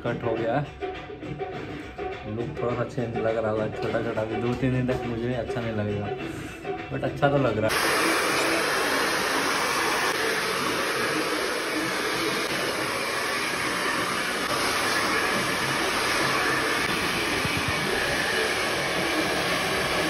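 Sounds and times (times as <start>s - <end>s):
hair dryer blowing: 7.7s - 20.0s.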